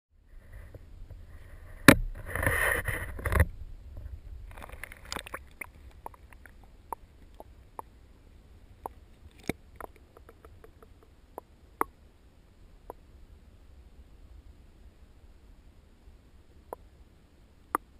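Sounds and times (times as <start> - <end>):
water sloshing against camera: 1.4 - 7.9
small clicks and pops: 8.8 - 11.9.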